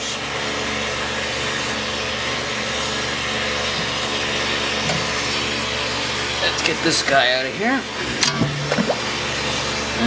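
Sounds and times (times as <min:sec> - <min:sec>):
machinery drone with hiss and hum: 0:00.0 - 0:10.0.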